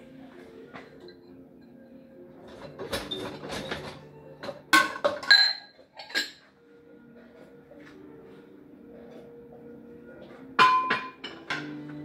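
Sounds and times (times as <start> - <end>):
soft background music: 0.0 - 12.0
dishes clattering: 2.4 - 6.5, 10.4 - 12.0
dishes clinking together: 2.6 - 6.5, 10.6 - 12.0.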